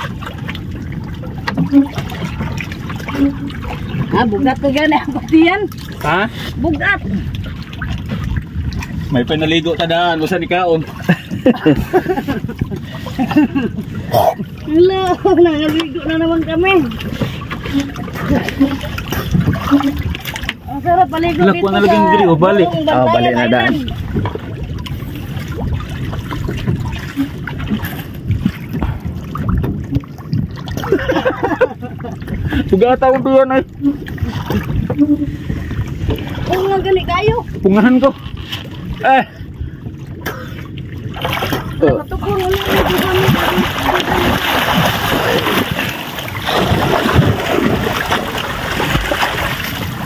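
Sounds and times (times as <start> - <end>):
small irregular splashes: 0.0 - 9.2, 40.1 - 50.0
water lapping against wooden hull: 0.0 - 50.0
wind and waves rushing: 0.0 - 50.0.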